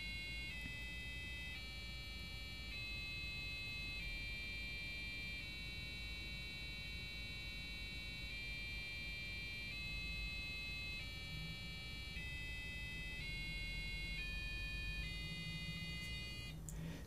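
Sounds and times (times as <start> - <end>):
buzzer playing rising scale tones: 0.0 - 16.6.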